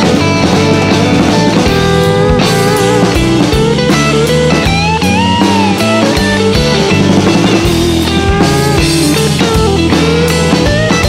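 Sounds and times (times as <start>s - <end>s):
drum beat: 0.0s - 11.0s
lead guitar bending notes: 0.0s - 11.0s.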